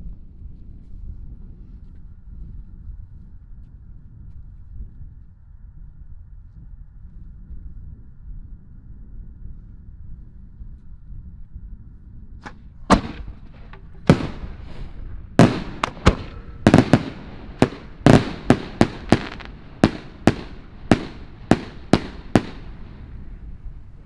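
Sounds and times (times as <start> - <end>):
fireworks bangs: 12.9 - 24.0.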